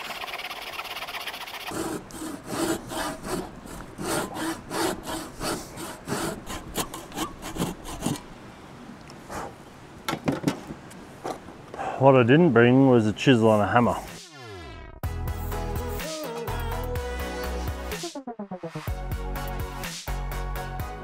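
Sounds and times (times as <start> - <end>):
hand saw cutting stick: 0.0 - 8.3.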